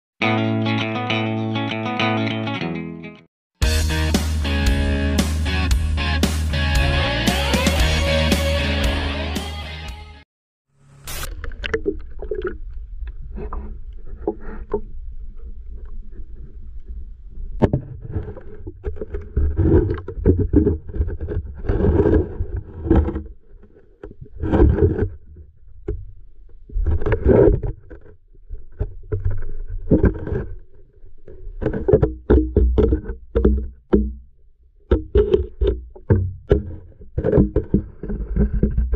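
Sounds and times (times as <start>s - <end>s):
water knocking on camera housing: 31.9s - 34.3s, 34.9s - 37.8s.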